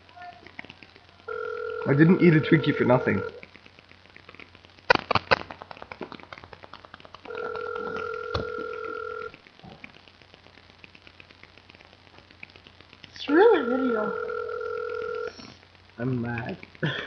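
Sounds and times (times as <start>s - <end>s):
telephone ringback tone: 1.3s - 3.4s, 7.3s - 9.3s, 13.6s - 15.4s.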